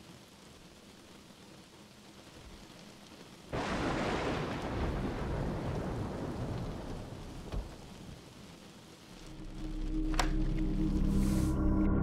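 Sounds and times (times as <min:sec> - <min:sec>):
faint rain: 0:00.0 - 0:12.0
thunder clap rumbling: 0:03.6 - 0:08.5.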